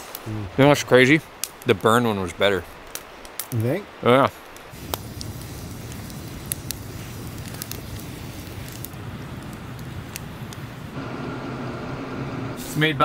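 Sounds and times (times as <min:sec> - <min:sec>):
campfire crackling and popping: 0:00.0 - 0:11.2
steady low hum: 0:04.8 - 0:12.7
steady higher hum: 0:10.9 - 0:12.7.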